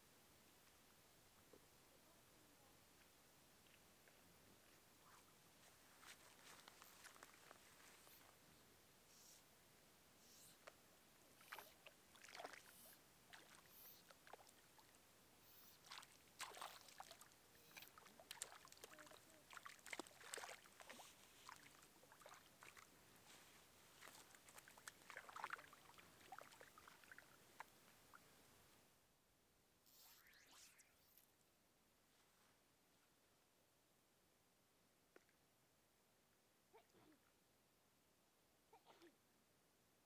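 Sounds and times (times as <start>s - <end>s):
faint small clicks and rustles: 2.9s - 8.4s.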